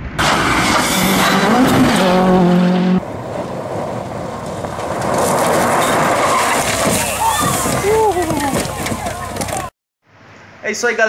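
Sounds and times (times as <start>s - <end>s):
gravel and tyre noise: 0.0s - 10.7s
rally car engine revving: 0.2s - 7.0s.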